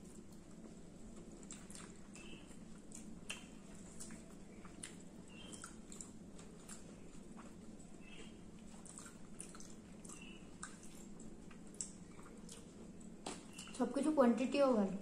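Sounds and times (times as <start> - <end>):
people chewing: 0.0 - 13.8
low steady hum: 0.0 - 15.0.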